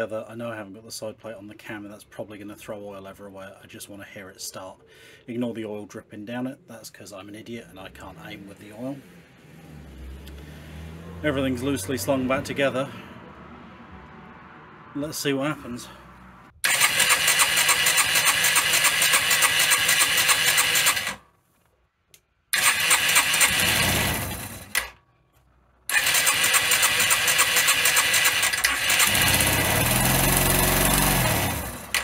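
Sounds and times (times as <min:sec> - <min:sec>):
motorcycle engine cranking on starter: 0:16.6 - 0:21.2, 0:22.5 - 0:25.0, 0:25.9 - 0:32.0
motorcycle engine firing: 0:16.6 - 0:21.2.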